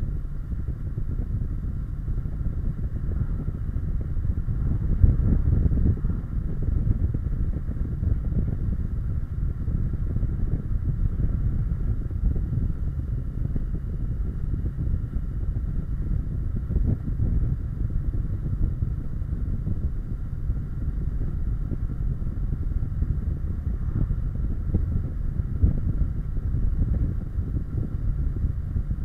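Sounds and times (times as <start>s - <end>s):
wind rumbling on microphone: 0.0s - 29.0s.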